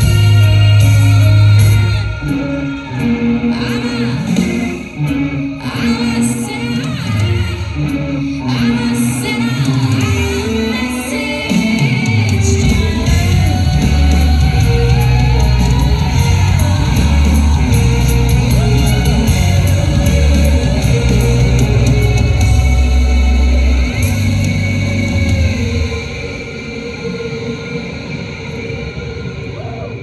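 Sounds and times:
music with singing voice: 0.0s - 30.0s
heavy bass line: 12.2s - 27.6s.

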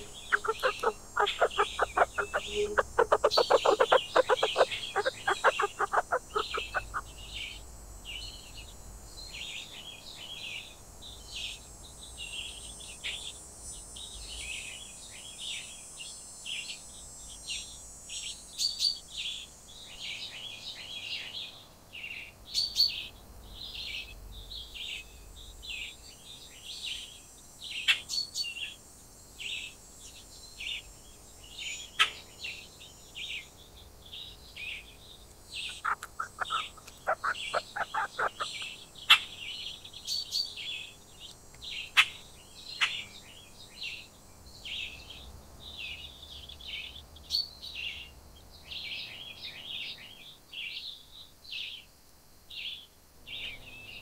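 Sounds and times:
rapid chattering bird call: 0.0s - 7.5s, 35.6s - 39.5s
small birds chirping: 0.0s - 51.9s.

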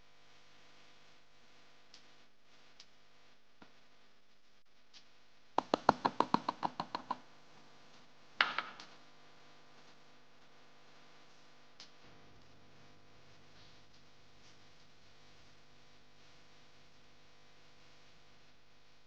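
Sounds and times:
glass bowl knocking on plastic: 5.6s - 7.2s.

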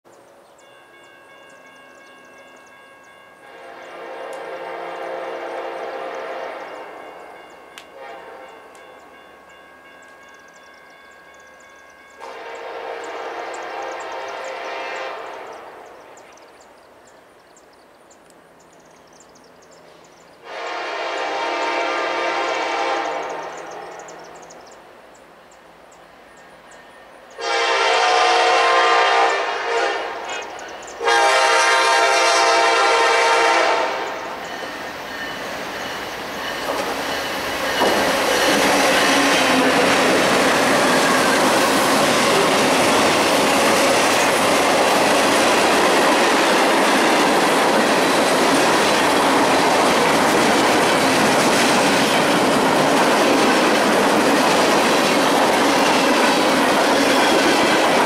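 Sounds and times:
locomotive horn blasts: 3.4s - 7.1s, 7.9s - 8.8s, 12.2s - 15.8s, 20.4s - 23.9s, 27.4s - 34.3s
train rumble: 18.4s - 58.0s.

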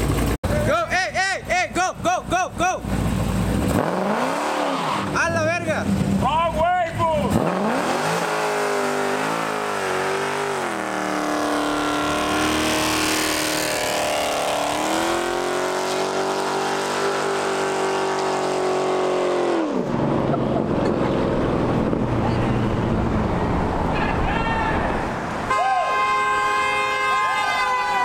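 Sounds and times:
car engine at high revs: 2.8s - 6.3s, 7.0s - 23.9s
tyres screeching on pavement: 4.0s - 5.7s.

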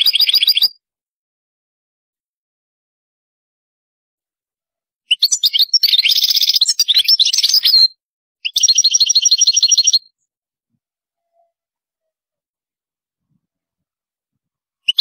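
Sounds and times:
bird twittering: 0.0s - 0.8s, 5.1s - 10.1s
bird trilling: 5.1s - 10.1s.

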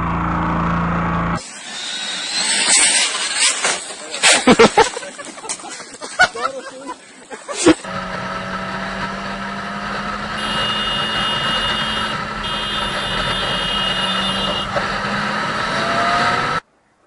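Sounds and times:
motorcycle engine running: 7.9s - 15.3s.

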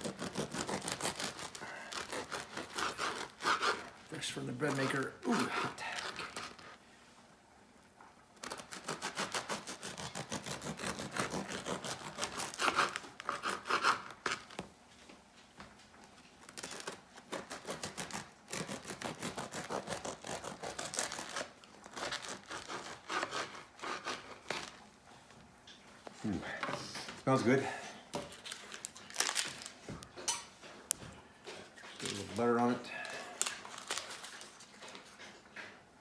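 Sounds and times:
bread knife sawing through bread: 0.0s - 4.0s, 8.4s - 14.4s, 16.9s - 24.8s.

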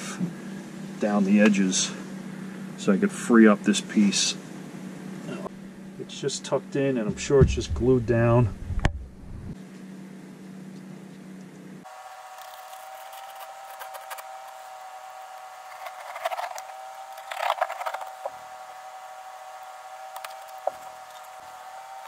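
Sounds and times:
steady hum: 0.0s - 22.0s
carpet rustling and scraping: 15.6s - 18.4s.

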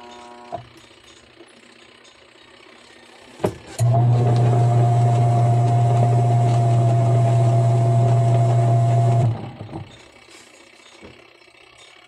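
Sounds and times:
washing machine motor hum: 2.6s - 10.2s.

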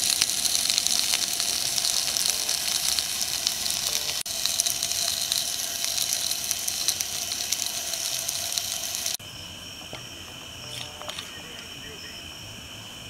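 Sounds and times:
food sizzling in a frying pan: 0.0s - 9.2s
crickets chirring: 0.0s - 13.0s.

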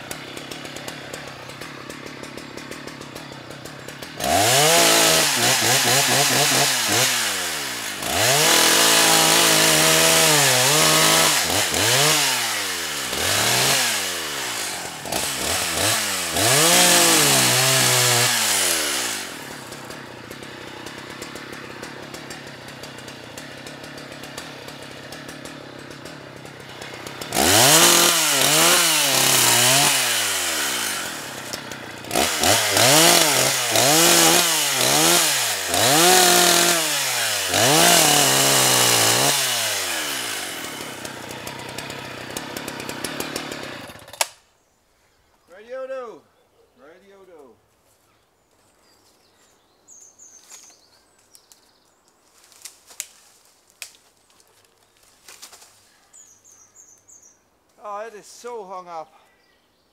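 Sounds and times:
chainsaw idling: 0.0s - 44.4s
chainsaw revving: 0.0s - 44.4s.

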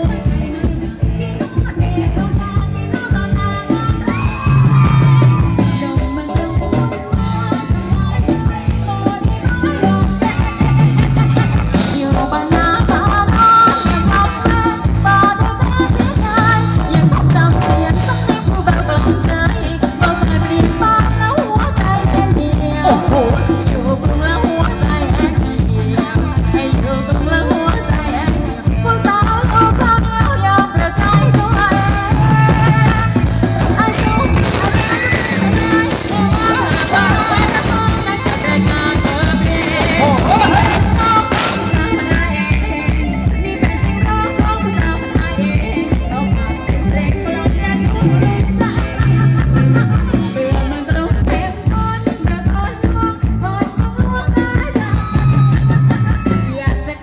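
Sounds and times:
person singing: 0.0s - 10.9s, 11.8s - 57.0s
live band over loudspeakers: 0.0s - 57.0s
steady drum beat: 21.6s - 56.9s.

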